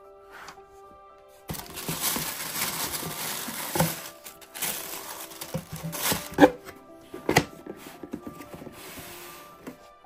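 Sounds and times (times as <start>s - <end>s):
tissue paper rustling: 1.4s - 6.6s.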